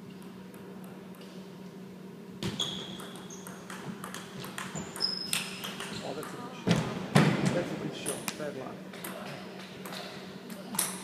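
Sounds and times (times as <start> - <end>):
steady low hum: 0.0 - 11.0
shoe squeaks: 2.4 - 3.6, 4.8 - 6.2.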